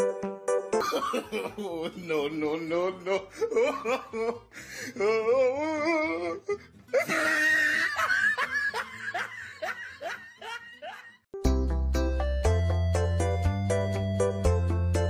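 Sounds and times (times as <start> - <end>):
music: 0.0 - 10.4, 11.4 - 15.0
person laughing hard: 0.8 - 2.2, 3.0 - 11.3.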